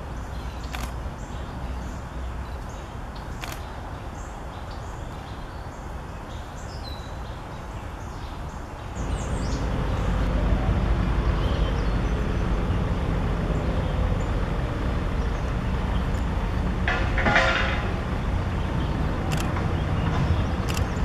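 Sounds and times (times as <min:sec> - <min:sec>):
distant songbird calls: 0:00.0 - 0:21.0
low background rumble: 0:09.0 - 0:21.0.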